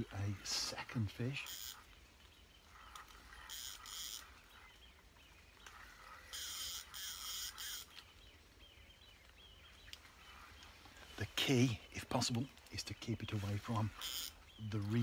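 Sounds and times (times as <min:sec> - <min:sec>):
faint birdsong: 0:00.0 - 0:15.0
fishing reel whirring: 0:01.5 - 0:01.8, 0:03.3 - 0:04.3, 0:06.3 - 0:07.9, 0:14.0 - 0:14.4.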